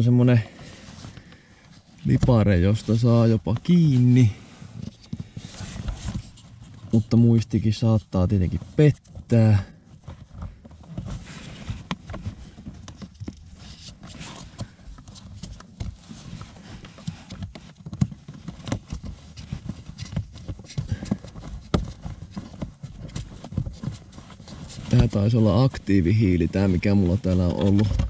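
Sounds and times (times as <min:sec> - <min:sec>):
plastic clicks and scraping: 0:26.6 - 0:28.0.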